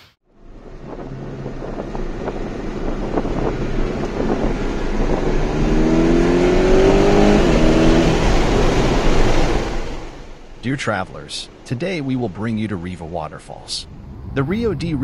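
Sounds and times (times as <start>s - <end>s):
vehicle engine accelerating: 0.3s - 10.4s, 13.8s - 15.0s.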